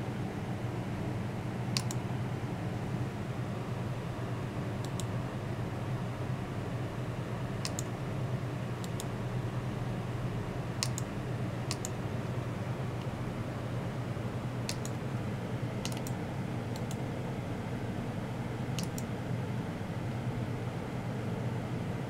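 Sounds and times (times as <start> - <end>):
steady low hum: 0.0 - 22.0
mouse button clicking: 10.8 - 11.1, 18.8 - 19.1.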